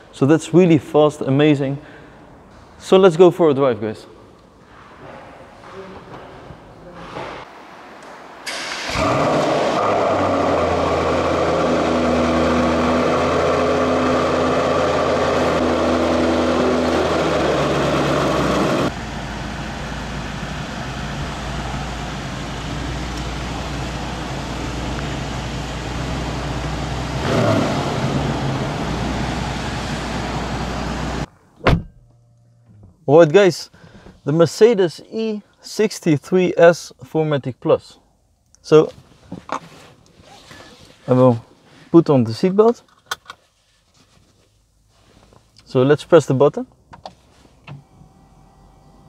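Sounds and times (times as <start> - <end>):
car engine starting and idling: 8.4 - 33.1.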